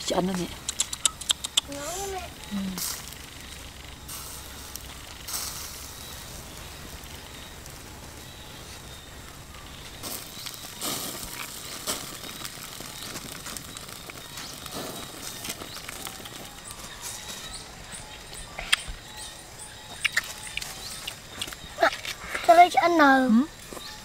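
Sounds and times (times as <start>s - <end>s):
fish sizzling on grill: 0.0s - 18.4s
embers crackling and popping: 0.0s - 24.0s.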